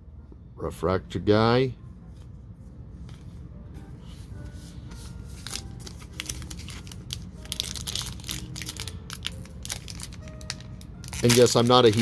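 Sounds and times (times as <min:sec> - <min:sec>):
wrapper tearing and crinkling: 0:05.4 - 0:12.0.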